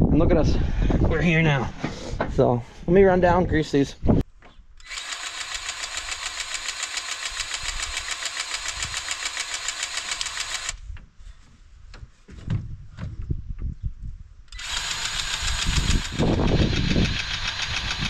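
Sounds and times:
grease gun pulsing whir: 4.8 - 10.8, 14.5 - 18.0.

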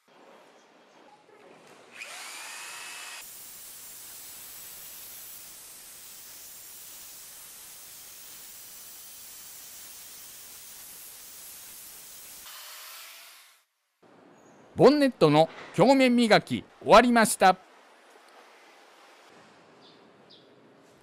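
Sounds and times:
electric polisher hissing: 2.0 - 13.2.

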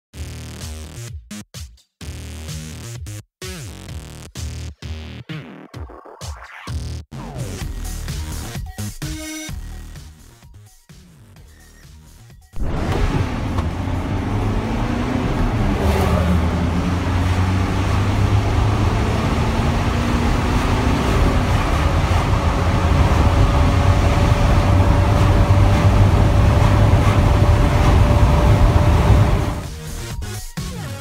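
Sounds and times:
van diesel engine accelerating: 12.6 - 29.7.

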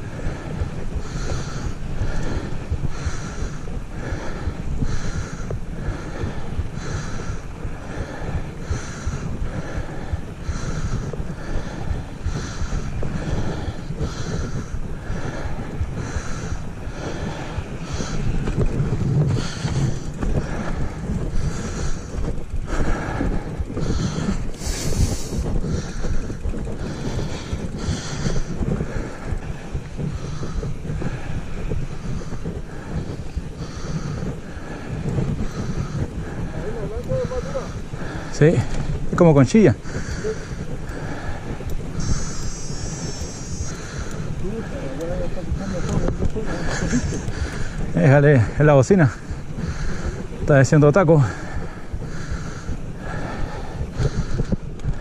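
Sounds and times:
bike tyres rolling over gravel: 0.0 - 55.0
wind rumbling on microphone: 0.0 - 55.0
pulsing hiss: 23.8 - 29.3, 35.5 - 54.4.

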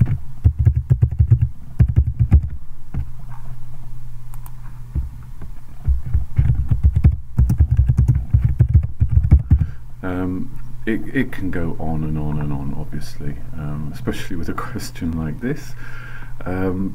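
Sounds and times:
typing on computer keyboard: 6.4 - 9.6.

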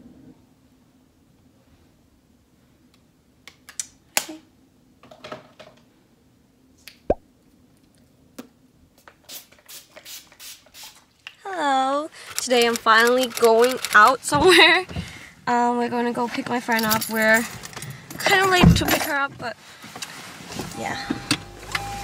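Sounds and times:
woman's voice: 11.4 - 17.5, 18.2 - 19.6, 20.8 - 21.3.

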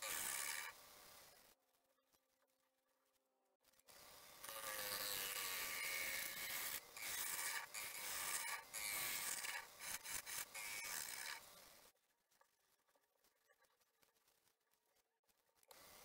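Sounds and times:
gouge cutting wood on lathe: 0.0 - 0.7, 4.6 - 11.5.

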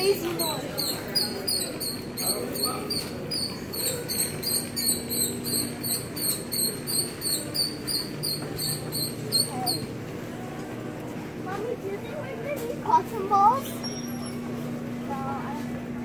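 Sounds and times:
shopping cart wheel squeaking: 0.0 - 10.0, 13.5 - 14.8.

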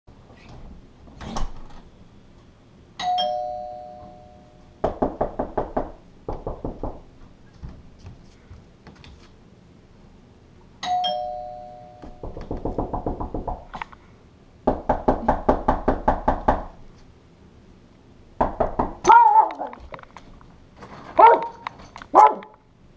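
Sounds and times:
two-note doorbell chime: 3.0 - 4.7, 10.8 - 12.2
rapid knocking on a door: 4.8 - 7.1, 12.1 - 13.7, 14.6 - 16.8, 18.4 - 19.0.

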